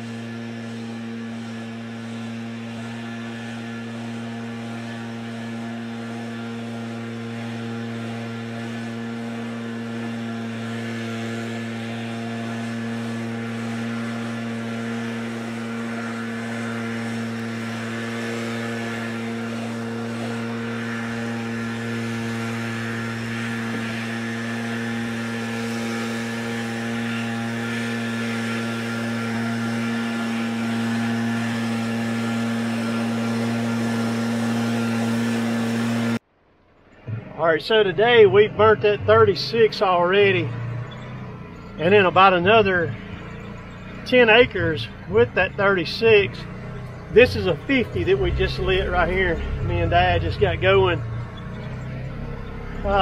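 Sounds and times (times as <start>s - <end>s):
leaf blower engine running: 0.0s - 53.0s.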